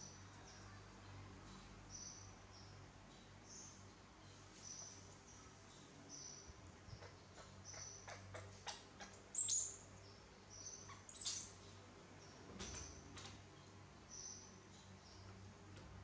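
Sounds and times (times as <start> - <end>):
baby monkey squeaking: 9.4 - 9.8, 10.9 - 11.6.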